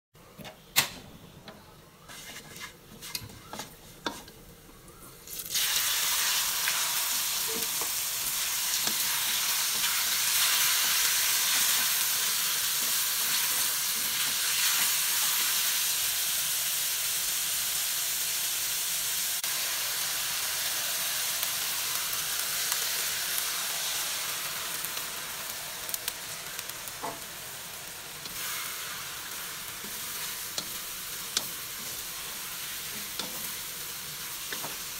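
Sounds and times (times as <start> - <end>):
garlic frying quietly: 0.2 - 34.9
spatula scraping a wok: 2.0 - 4.4, 28.2 - 34.9
chicken sizzling in hot oil: 5.2 - 34.9.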